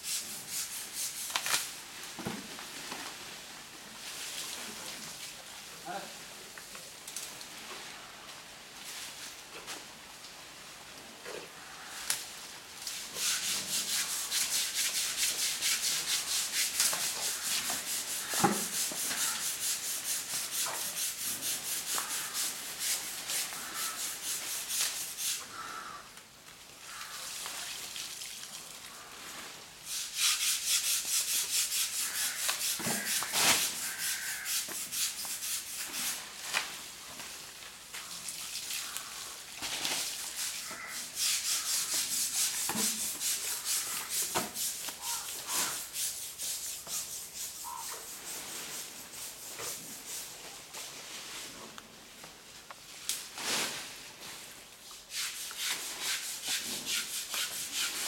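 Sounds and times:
rhythmic scrubbing of hide: 13.0s - 25.4s, 29.9s - 36.2s, 40.3s - 50.4s, 55.1s - 58.0s.

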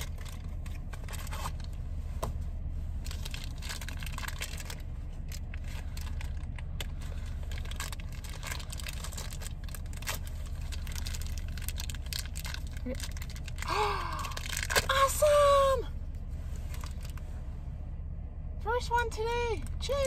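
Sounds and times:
packaging crinkling and ripping: 0.0s - 1.8s, 3.0s - 15.1s
steady low hum: 0.0s - 20.0s.

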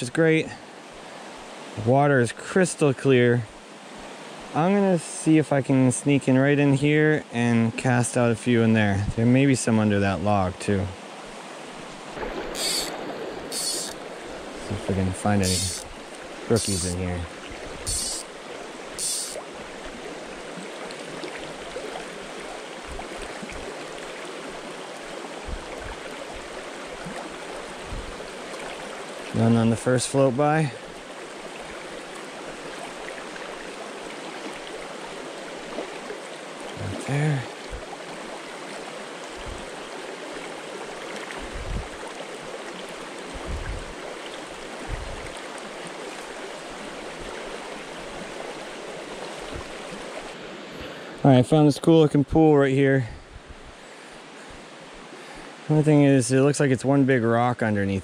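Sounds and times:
creek water rushing over rocks: 0.0s - 57.4s.

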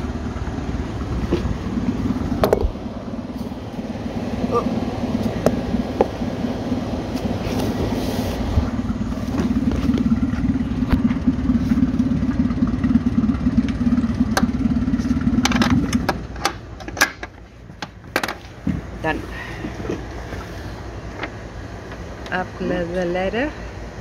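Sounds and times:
outboard motor idling: 0.0s - 24.0s
sharp clicks and knocks: 15.4s - 18.8s.

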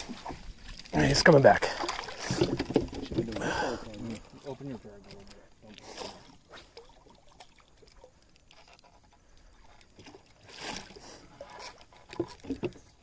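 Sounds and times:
water splash: 0.0s - 4.6s, 10.0s - 12.8s
water trickling and lapping: 0.0s - 13.0s.

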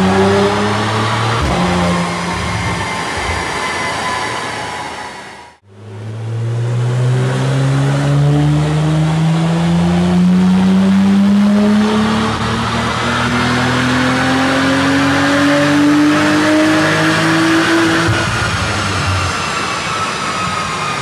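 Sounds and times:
car engine revving under load: 5.7s - 19.3s.

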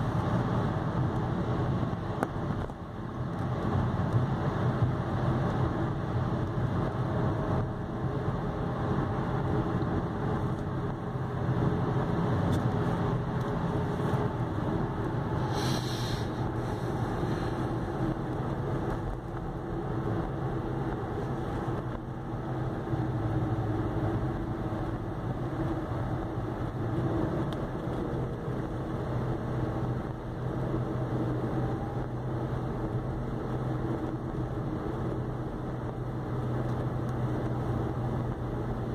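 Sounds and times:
car engine: 0.0s - 38.9s
road noise: 0.0s - 38.9s
brief hiss: 15.4s - 17.6s.

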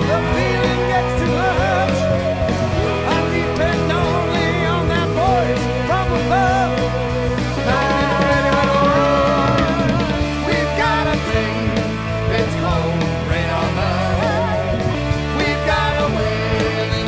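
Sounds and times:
rock song with singer and band: 0.0s - 17.0s.

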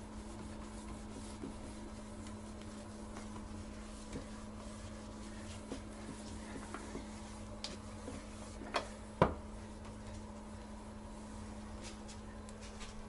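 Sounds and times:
cloth wiping plastic seat: 0.0s - 8.9s
steady low hum: 0.0s - 13.0s.

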